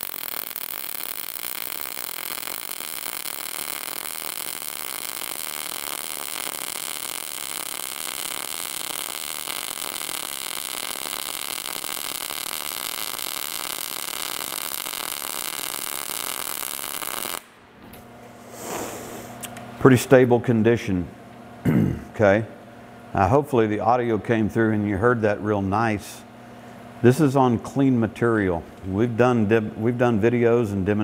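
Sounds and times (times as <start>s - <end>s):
welding arc crackling: 0.0s - 17.6s.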